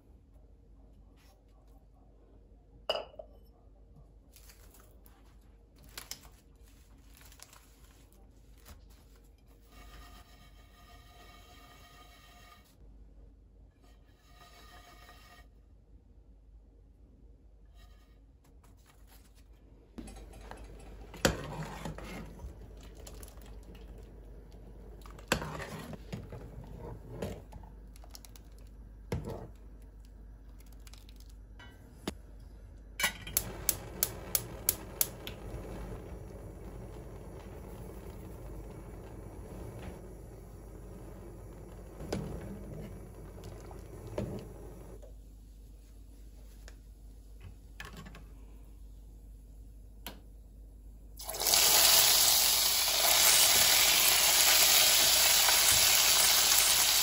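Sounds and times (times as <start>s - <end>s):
burner and butter hiss: 33.3s - 45.0s.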